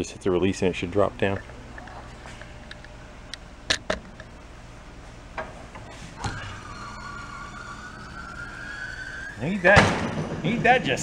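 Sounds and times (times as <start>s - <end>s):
air jack whine: 5.7s - 11.0s.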